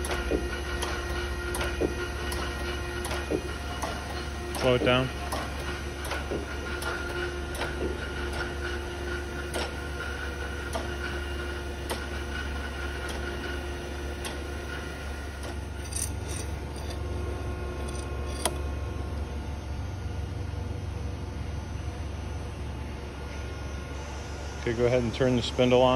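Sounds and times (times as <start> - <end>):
machine clicks and knocks: 0.0 - 8.7, 9.5 - 9.8, 11.9 - 12.2
hydraulic system humming: 0.0 - 21.5.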